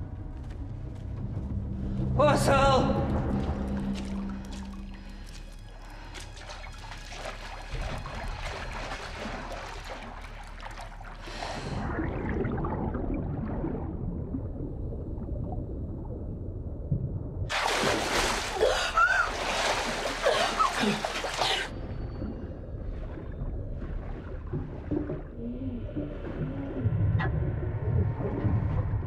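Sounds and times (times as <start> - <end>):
water sloshing: 2.9 - 15.1, 17.5 - 27.0
people splashing in water: 6.0 - 12.2, 17.5 - 21.7
muffled underwater rumble: 7.7 - 17.5, 21.7 - 29.0.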